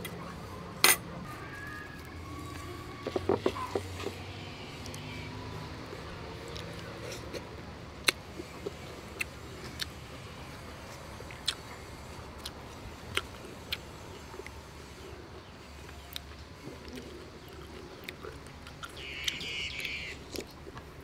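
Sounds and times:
person chewing with mouth clicks: 0:05.9 - 0:10.0, 0:11.2 - 0:11.7, 0:12.4 - 0:14.6, 0:15.4 - 0:20.8.

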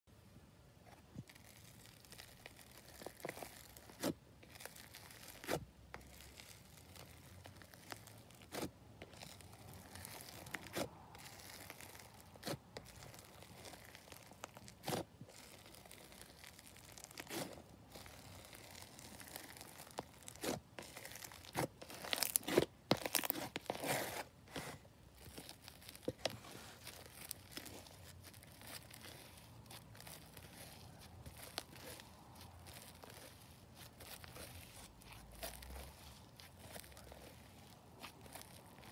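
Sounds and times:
slime crackling and popping: 0:01.2 - 0:24.3, 0:25.1 - 0:38.9.

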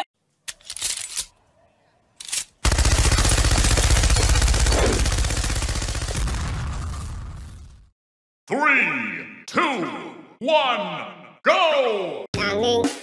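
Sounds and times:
machine-gun fire: 0:02.6 - 0:07.6.

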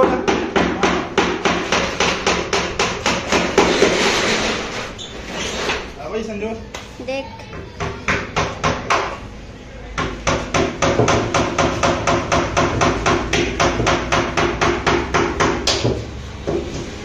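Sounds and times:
hammer knocking on wooden cabinet: 0:00.0 - 0:03.9, 0:07.5 - 0:09.2, 0:10.0 - 0:16.8.

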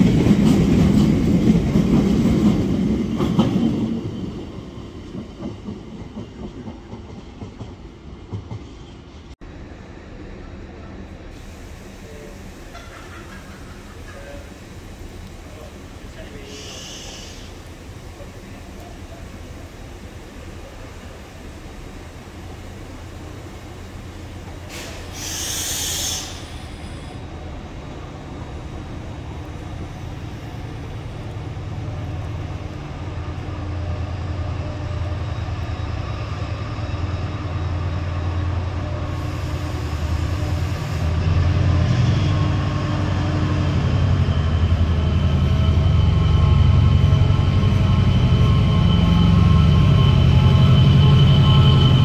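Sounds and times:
diesel locomotive engine drone: 0:00.0 - 0:52.0
train coaches running noise: 0:00.0 - 0:52.0
brief hiss: 0:11.3 - 0:17.8, 0:24.5 - 0:27.2.

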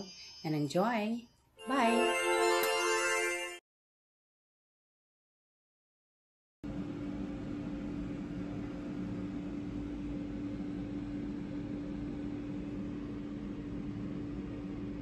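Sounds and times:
steady machine hum: 0:06.7 - 0:15.0.

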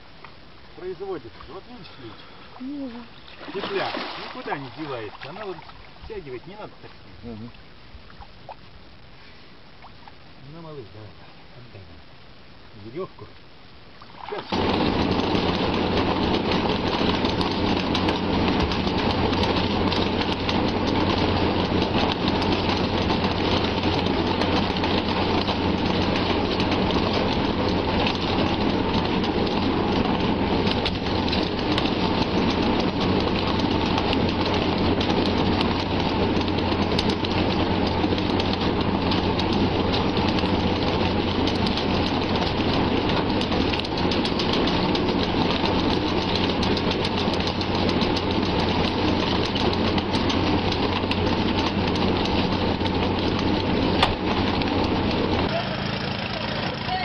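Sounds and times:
outboard engine humming: 0:00.0 - 0:57.0
fish splashing in a net: 0:03.2 - 0:06.0.

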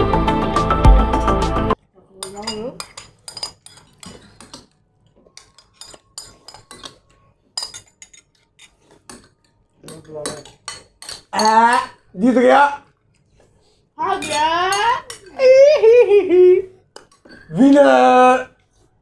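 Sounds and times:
loud background music: 0:00.0 - 0:01.8
spoons clinking on glass bowls: 0:02.2 - 0:04.8, 0:05.4 - 0:12.0, 0:14.1 - 0:15.4, 0:17.0 - 0:17.6.

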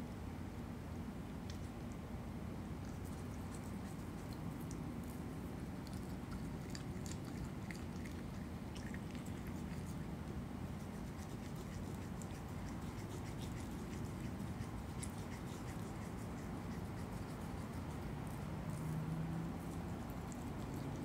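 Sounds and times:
steady low hum: 0:00.0 - 0:21.0
animal chewing and tearing meat: 0:02.8 - 0:21.0.

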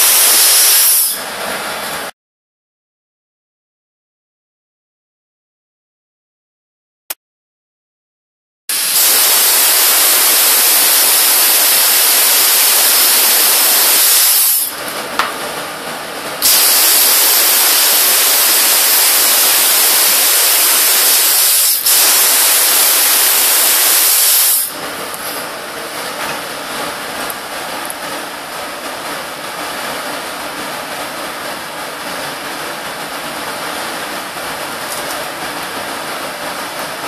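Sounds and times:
spray gun hissing: 0:08.7 - 0:14.8, 0:16.4 - 0:24.8.

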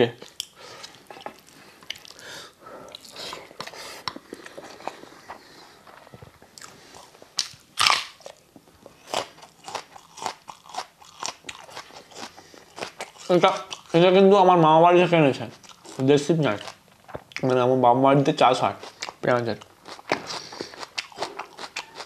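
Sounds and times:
chewing food: 0:00.2 - 0:02.2, 0:02.9 - 0:14.0, 0:18.8 - 0:22.0
crunchy bite into raw onion: 0:07.4 - 0:08.4.

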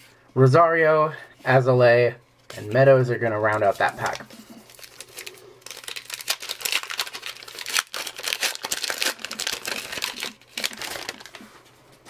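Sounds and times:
wrapper crinkling as torn open: 0:03.8 - 0:11.5.

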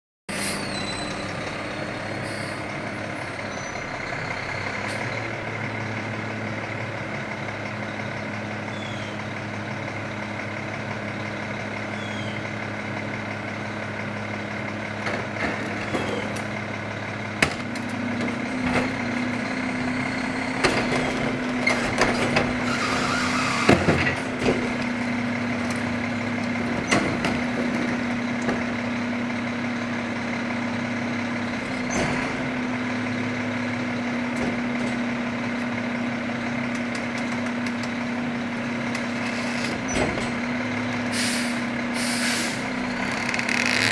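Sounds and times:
garbage truck diesel engine: 0:00.3 - 0:43.9.

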